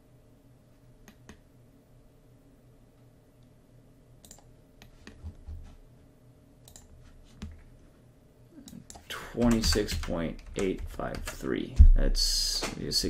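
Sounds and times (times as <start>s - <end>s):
computer mouse clicks: 1.0s - 1.4s, 4.2s - 5.4s, 6.6s - 7.6s
soft low thumps: 11.8s - 12.9s.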